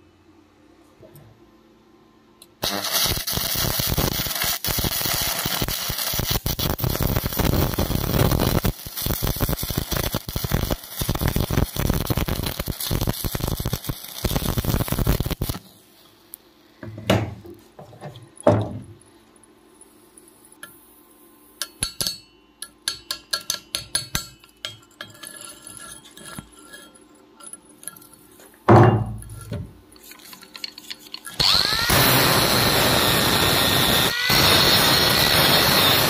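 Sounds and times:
welding arc crackling: 2.6s - 15.9s, 30.0s - 36.0s.

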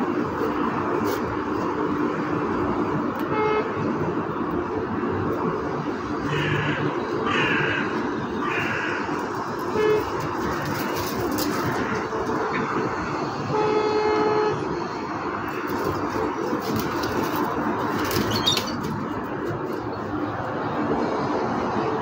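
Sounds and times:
city traffic noise: 0.0s - 22.0s
car horn: 3.2s - 3.9s, 9.6s - 10.6s, 13.4s - 14.8s.

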